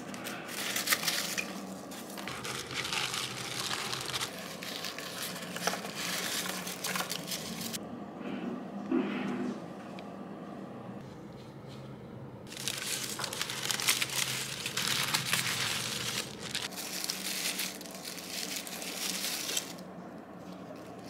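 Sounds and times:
paper crinkling and rustling: 0.0 - 7.8, 12.5 - 21.0.

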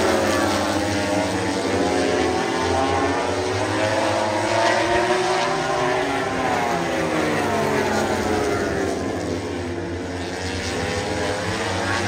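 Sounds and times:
engine drone: 0.0 - 12.0.

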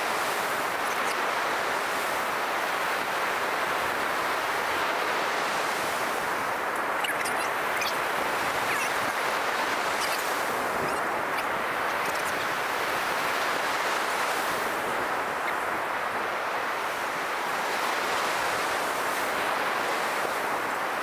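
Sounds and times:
wind noise on microphone: 0.0 - 16.8
ocean surf washing onto beach: 0.0 - 21.0.

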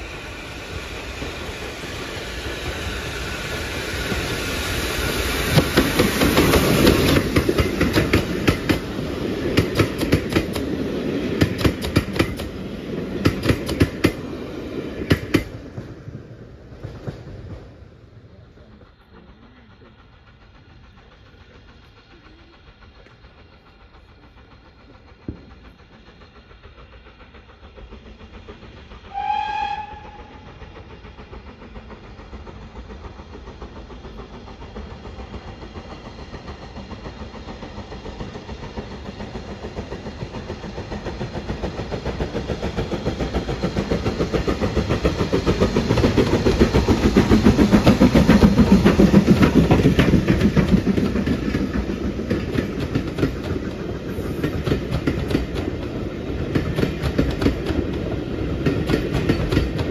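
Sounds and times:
steam train passing: 0.0 - 59.9
steam whistle blast: 29.1 - 30.6.

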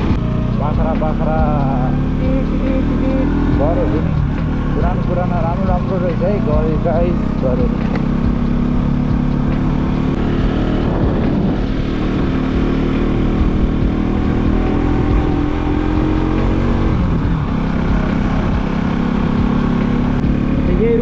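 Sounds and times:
motorcycle engine running: 0.0 - 21.0
steady low rumble: 3.1 - 16.2.

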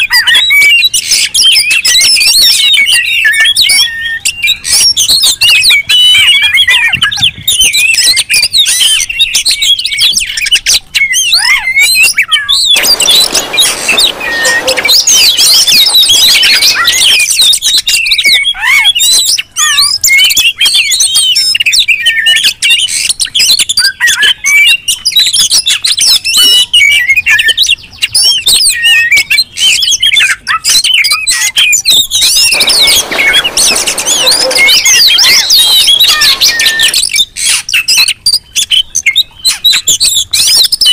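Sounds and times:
birds whistling and chirping: 0.0 - 40.9
harsh hissy bird calls: 12.8 - 17.2.

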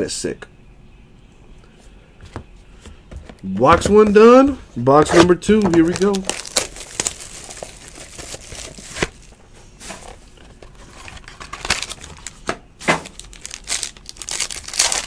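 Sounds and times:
foil card pack crinkling and tearing: 5.1 - 10.0, 10.7 - 15.0.

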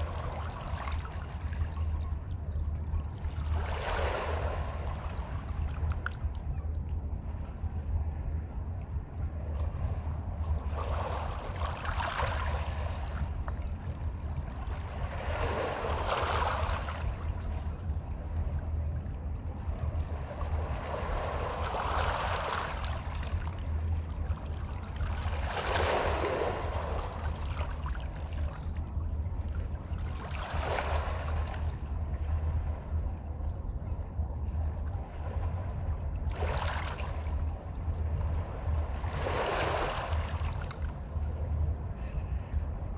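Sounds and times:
steady low rumble: 0.0 - 42.9
small waves lapping on shore: 3.2 - 6.4, 9.5 - 13.7, 14.6 - 18.2, 19.7 - 28.7, 29.4 - 32.9, 35.0 - 42.3.

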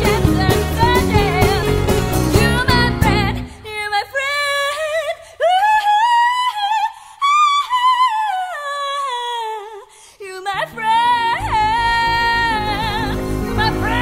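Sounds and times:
woman singing unaccompanied: 0.0 - 14.0.

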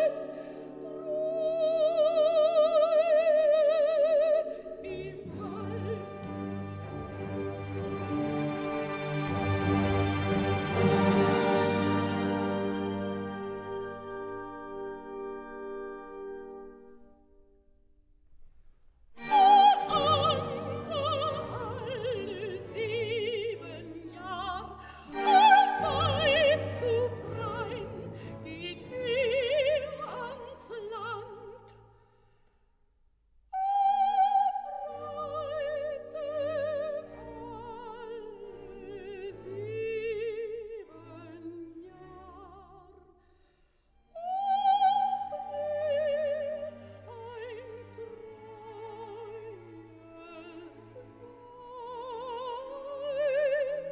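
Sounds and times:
operatic soprano singing: 0.0 - 16.6, 19.2 - 31.8, 33.6 - 43.2, 44.1 - 53.9
orchestra playing: 4.9 - 17.2, 19.2 - 31.0.

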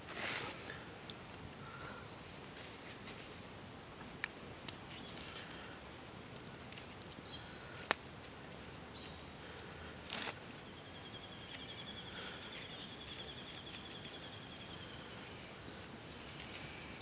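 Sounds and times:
gritty clicks of crushed clay: 4.0 - 10.4, 11.4 - 15.2.

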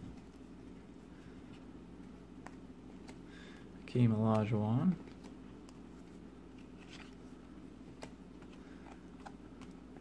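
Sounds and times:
trading cards being flipped: 4.2 - 7.3.

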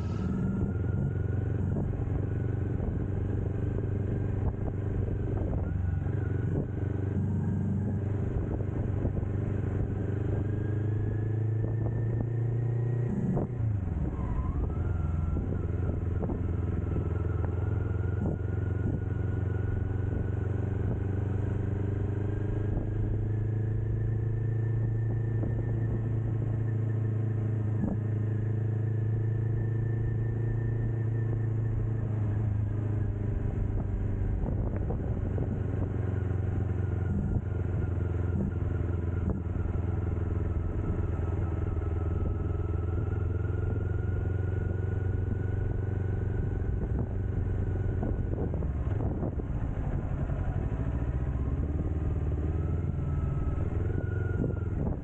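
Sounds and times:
motorcycle engine running: 0.0 - 55.0
wind rushing over microphone: 33.0 - 36.2, 45.2 - 55.0.

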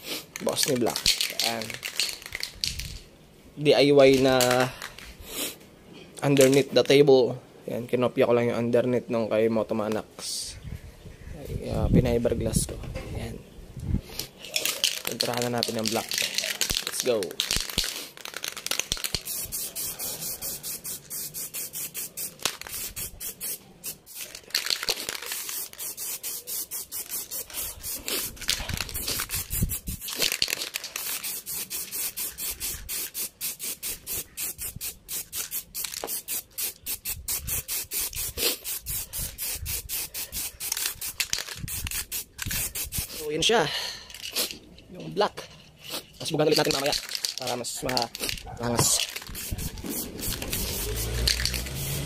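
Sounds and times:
spray paint hissing: 0.0 - 3.0, 14.1 - 43.5, 44.1 - 44.6, 45.8 - 52.0.

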